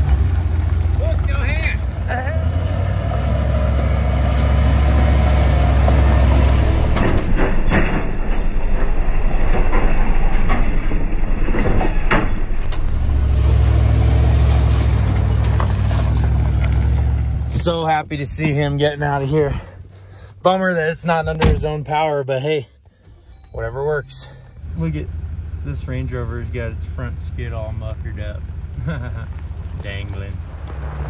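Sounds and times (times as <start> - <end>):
truck engine droning: 0.0 - 31.0
tyres crunching over gravel: 12.6 - 22.3, 27.3 - 30.9.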